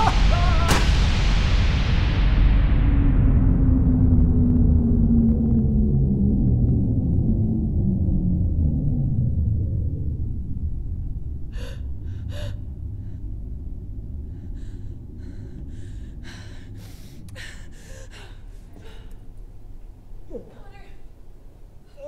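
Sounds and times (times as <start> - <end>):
deep rumbling drone: 0.0 - 22.0
woman gasping and panting: 11.6 - 12.7, 14.4 - 19.3.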